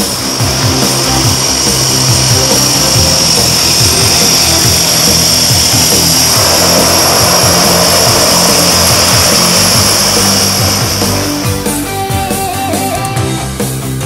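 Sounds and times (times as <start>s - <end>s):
floatplane engine whining: 0.0s - 13.2s
background music: 0.0s - 14.0s.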